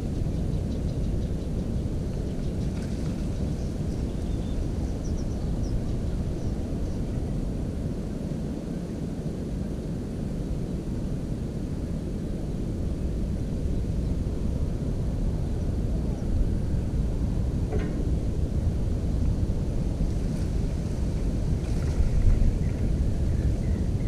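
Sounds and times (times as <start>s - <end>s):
faint high bird chirps: 4.0s - 5.4s
steady low rumbling: 10.8s - 24.0s.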